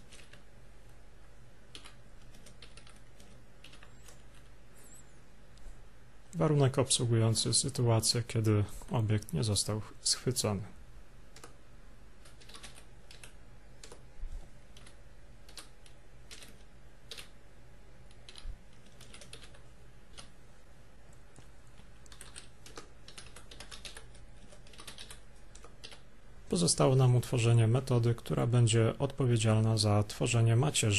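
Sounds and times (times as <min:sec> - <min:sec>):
typing on computer keyboard: 0:00.0 - 0:00.5, 0:01.7 - 0:04.5, 0:11.3 - 0:11.6, 0:12.2 - 0:14.0, 0:14.7 - 0:17.4, 0:18.1 - 0:20.3, 0:22.0 - 0:26.0
faint low hum: 0:00.0 - 0:30.9.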